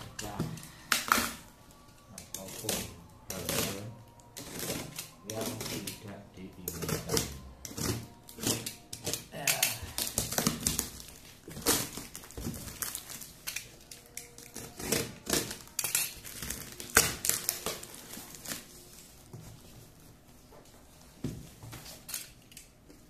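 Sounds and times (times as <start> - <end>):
taped cardboard being torn: 2.3 - 18.7.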